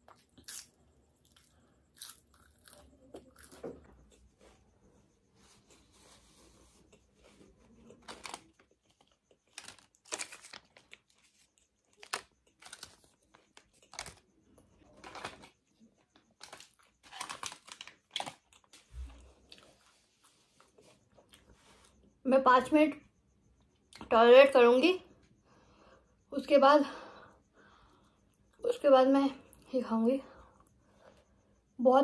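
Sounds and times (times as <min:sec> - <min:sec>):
foil pouches crinkling: 0:07.9 - 0:14.2, 0:14.9 - 0:15.6, 0:16.3 - 0:18.9.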